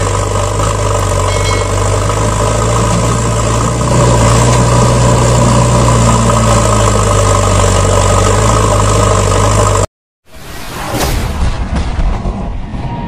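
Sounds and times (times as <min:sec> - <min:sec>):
truck engine idling: 0:00.0 - 0:09.9.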